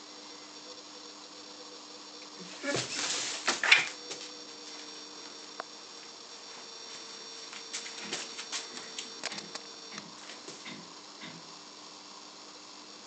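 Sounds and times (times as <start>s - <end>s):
animals scuffling: 2.5s - 5.0s, 7.0s - 9.2s.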